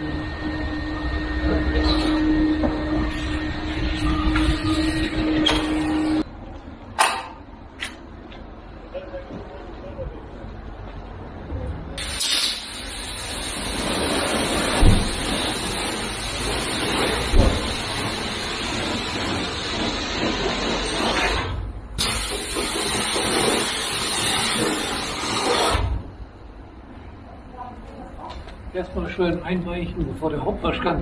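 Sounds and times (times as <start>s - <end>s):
pressure washer spraying water: 12.0s - 25.8s.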